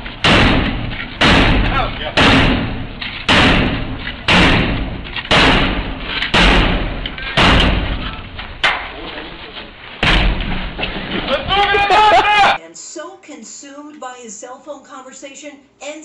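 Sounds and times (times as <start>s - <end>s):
heavy bangs on steel door: 0.0s - 8.9s, 10.0s - 10.8s.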